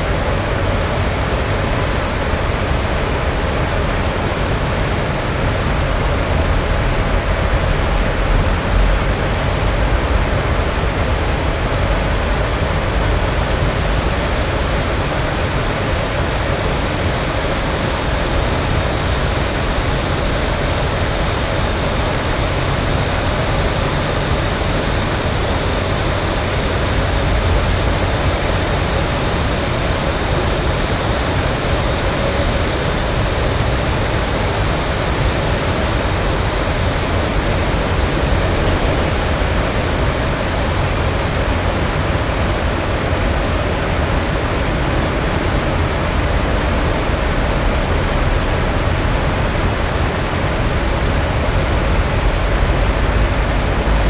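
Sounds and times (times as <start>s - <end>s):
high hiss: 8.5s - 54.0s
traffic roar: 21.2s - 44.3s.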